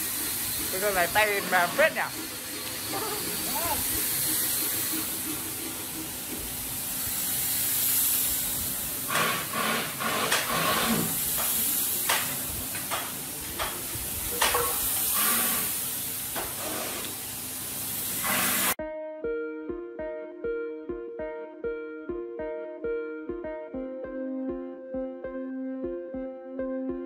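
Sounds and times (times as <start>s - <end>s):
spray gun hissing: 0.0s - 18.8s.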